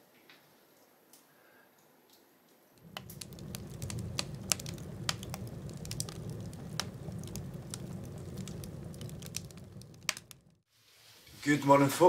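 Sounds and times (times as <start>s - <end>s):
logs crackling in stove: 2.8s - 10.6s
low steady rumble: 2.8s - 10.6s.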